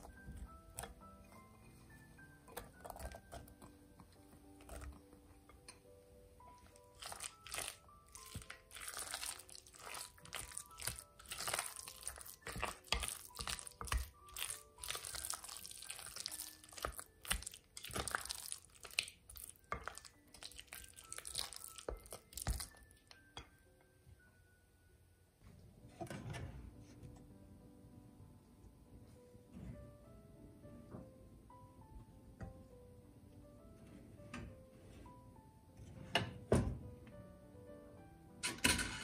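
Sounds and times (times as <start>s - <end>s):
soft background music: 0.0s - 39.0s
wooden spoon stirring in glass bowl: 6.7s - 23.1s.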